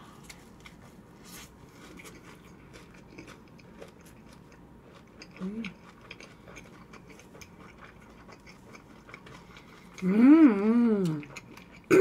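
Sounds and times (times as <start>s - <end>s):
chewing food: 0.2s - 12.0s
person humming mm-mmm: 10.0s - 11.4s.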